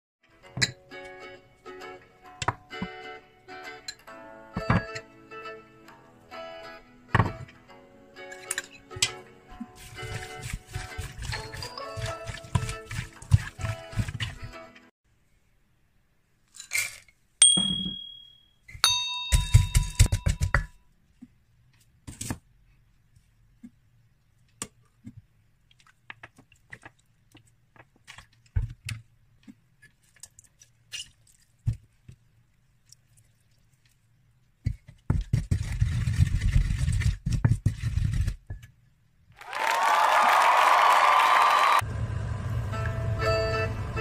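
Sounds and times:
pestle pounding in a mortar: 10.1s - 14.2s, 19.3s - 20.7s
short ringing clinks: 17.4s - 20.0s.

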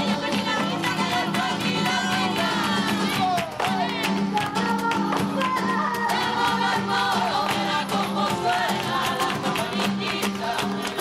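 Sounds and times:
song with rhythmic accompaniment: 0.0s - 11.0s.

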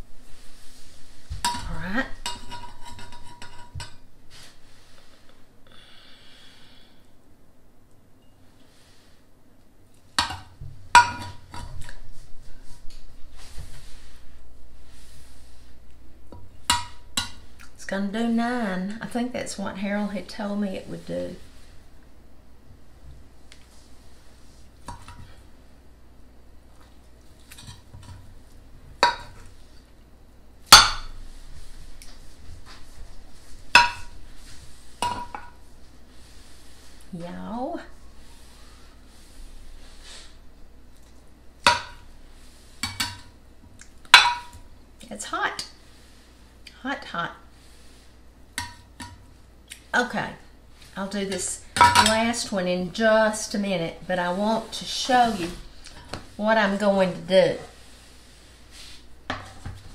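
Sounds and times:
spatula scraping dish: 1.4s - 5.2s.

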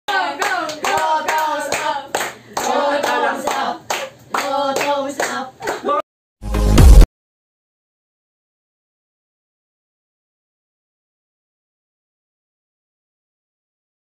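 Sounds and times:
group singing a chant: 0.1s - 5.5s
rhythmic clapping: 0.1s - 6.0s.

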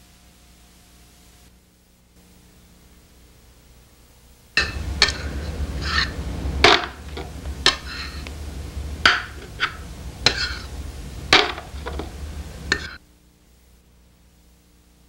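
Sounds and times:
faint hiss: 0.0s - 15.0s
spoon scraping a bowl: 4.6s - 8.4s, 9.1s - 13.0s.

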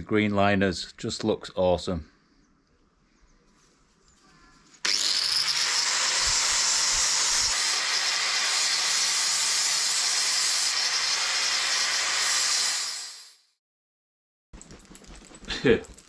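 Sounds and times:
angle grinder grinding steel: 4.8s - 13.4s.

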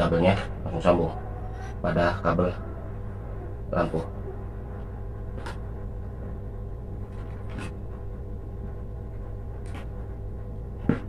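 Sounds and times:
steady low hum: 0.0s - 11.0s
wire scratching and rustling: 4.1s - 8.8s.

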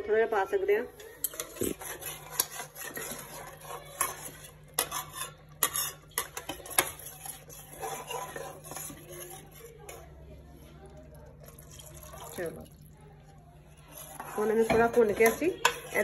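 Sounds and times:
spoon scraping a pot: 0.9s - 10.1s, 13.7s - 16.0s.

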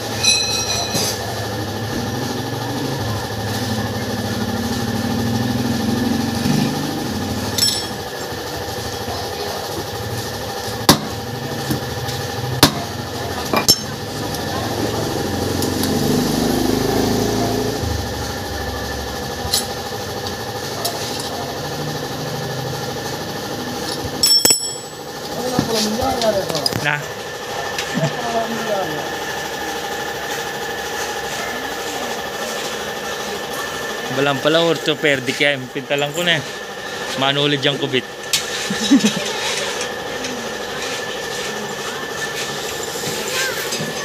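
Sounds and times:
steady background hum: 0.0s - 44.0s
metal knocks and clinks: 24.2s - 25.0s.

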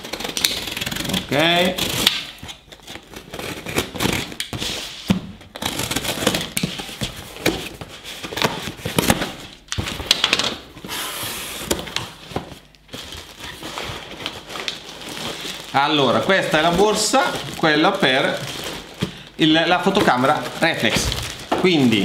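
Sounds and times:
box cutter slicing packing tape: 0.0s - 4.7s, 5.5s - 9.3s
paper and plastic rustling: 2.3s - 22.0s.

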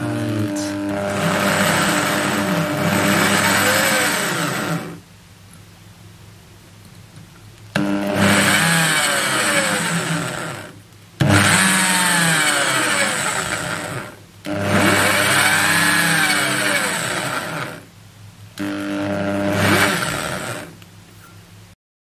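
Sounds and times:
electric drill drilling copper: 0.0s - 5.0s, 7.8s - 17.9s, 18.6s - 20.8s.

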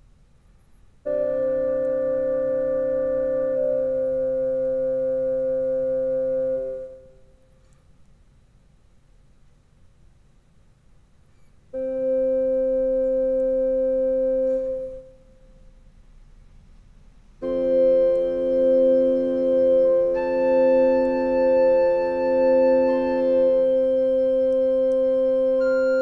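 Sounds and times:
keyboard playing organ-like chords: 1.1s - 7.4s, 11.8s - 15.4s, 17.4s - 26.0s.

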